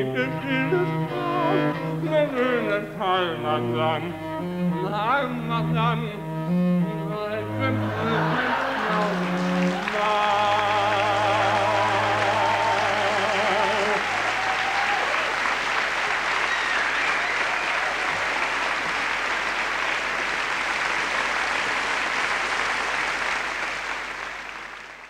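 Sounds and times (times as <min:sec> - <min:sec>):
man singing held note: 0:00.0 - 0:04.1
audience applauding: 0:07.8 - 0:25.0.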